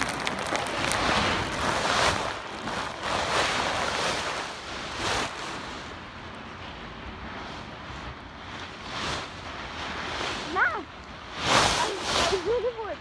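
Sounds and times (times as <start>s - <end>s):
rustling on covered microphone: 0.0s - 5.7s.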